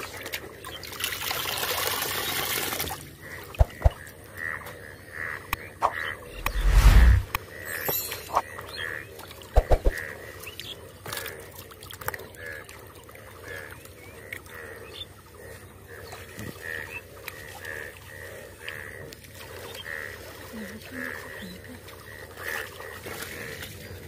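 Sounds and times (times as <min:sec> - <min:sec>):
frogs croaking: 0:03.0 - 0:24.0
hands splashing in muddy water: 0:03.6 - 0:04.0, 0:09.6 - 0:10.0.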